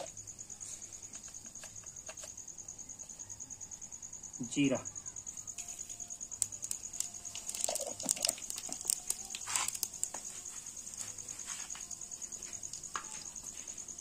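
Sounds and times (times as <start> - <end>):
crickets chirping: 0.0 - 14.0
seeds popping in hot oil: 5.4 - 14.0.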